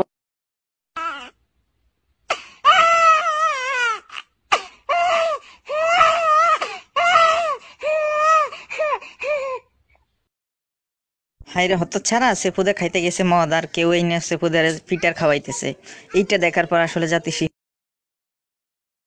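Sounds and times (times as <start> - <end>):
short gasps: 2.3 - 2.6, 4.5 - 4.8, 15.8 - 16.2.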